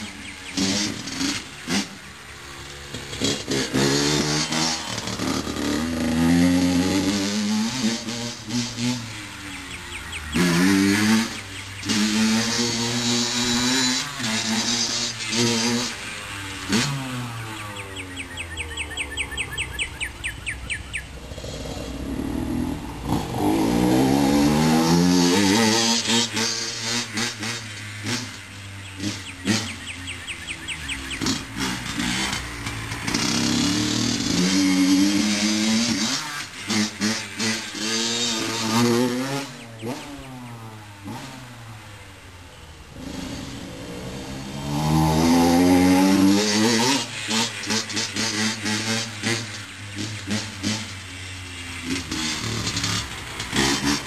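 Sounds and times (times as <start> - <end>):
dirt bike engine revving: 0.0 - 54.0
engine crackles: 0.0 - 54.0
fast even chirping: 17.5 - 21.4.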